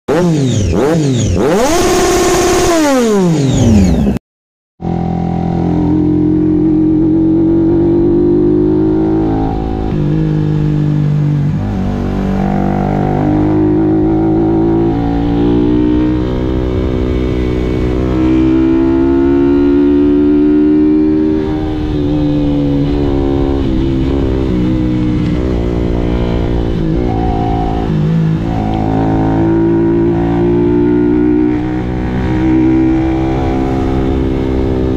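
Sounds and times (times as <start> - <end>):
motorcycle engine revving: 0.1 - 4.2, 4.8 - 34.9
crossing tones sweeping: 20.8 - 34.2.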